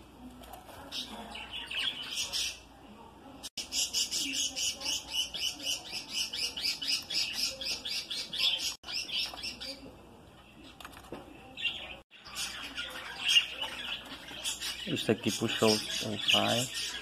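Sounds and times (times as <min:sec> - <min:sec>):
budgerigars chirping: 0:11.7 - 0:17.0.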